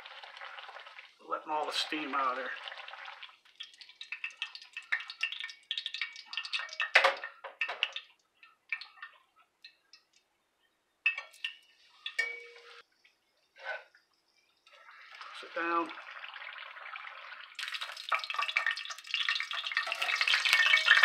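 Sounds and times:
oil sizzling and popping: 0.0s - 10.3s, 11.0s - 21.0s
metal utensils knocking on pan: 6.5s - 8.0s, 11.1s - 12.8s
ringing metal clink: 12.1s - 12.8s.

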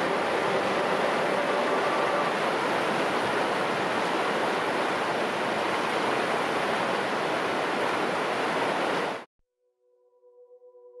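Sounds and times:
flowing water rushing: 0.0s - 9.3s.

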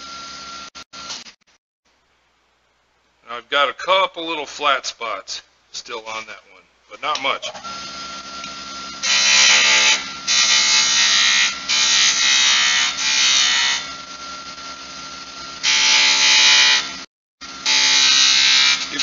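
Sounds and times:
wood lathe humming: 7.6s - 19.0s
chisel cutting spinning wood: 7.7s - 15.0s.

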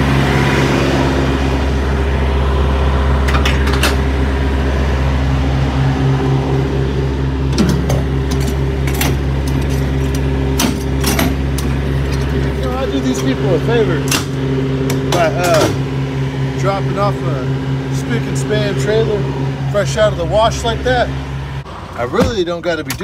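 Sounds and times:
diesel engine idling: 0.0s - 23.0s
sharp clicks and knocks: 22.2s - 23.0s.

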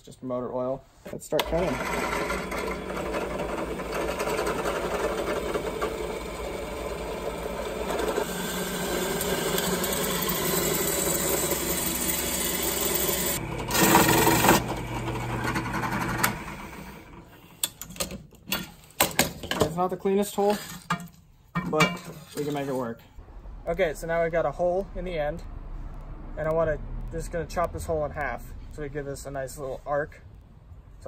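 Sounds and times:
drill press grinding through steel: 1.4s - 17.4s.

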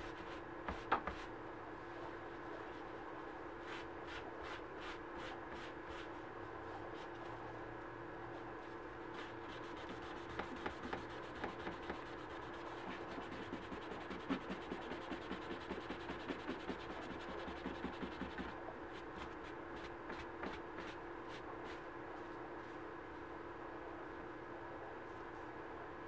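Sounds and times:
steady low hum: 0.0s - 26.0s
pad rubbing leather: 9.2s - 18.6s.

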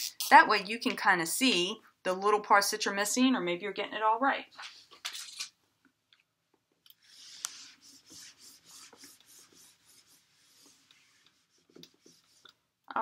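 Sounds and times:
eraser wiping whiteboard: 7.0s - 12.6s.

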